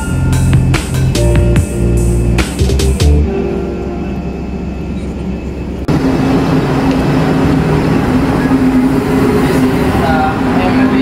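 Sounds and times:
background music: 0.0 - 5.9
ship engine drone: 0.0 - 11.0.

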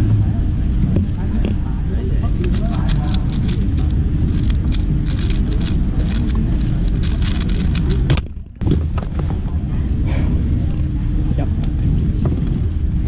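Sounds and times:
low rumble of hall noise: 0.0 - 13.0
puzzle cube plastic clicking: 2.5 - 8.1.

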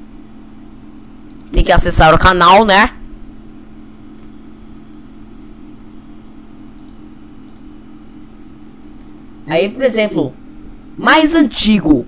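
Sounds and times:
computer mouse clicks: 1.2 - 1.5, 6.7 - 7.7.

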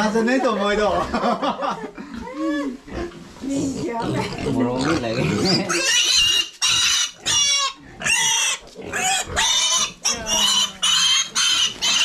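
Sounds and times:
piglet squealing: 5.0 - 12.0.

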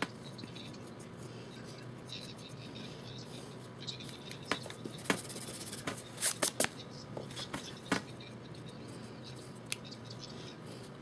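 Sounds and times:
pencil scratching on paper: 4.6 - 6.4.

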